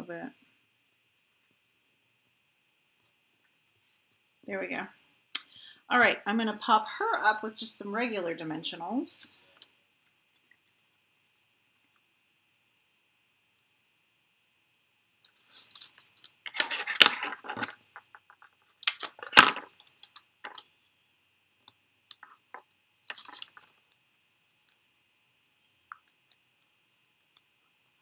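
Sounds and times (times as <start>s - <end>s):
paper and plastic crinkling: 15.3s - 20.6s, 23.1s - 23.9s.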